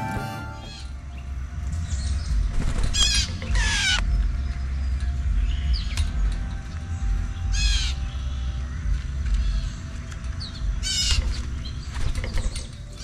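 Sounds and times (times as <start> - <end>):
steady low rumble: 0.0 - 12.2
blue jay harsh calls: 0.6 - 0.9, 2.9 - 4.1, 7.5 - 8.2, 10.8 - 11.5.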